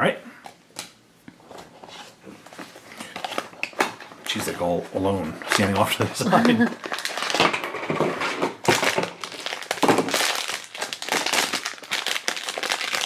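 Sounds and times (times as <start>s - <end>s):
foil bag crinkling: 3.0s - 7.8s, 8.6s - 13.0s.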